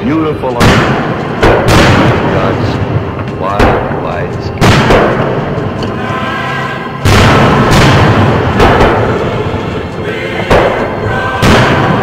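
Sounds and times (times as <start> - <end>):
sharp firework reports: 0.0 - 5.6, 7.0 - 9.4
firework booms rumbling: 0.6 - 5.7, 7.0 - 9.4.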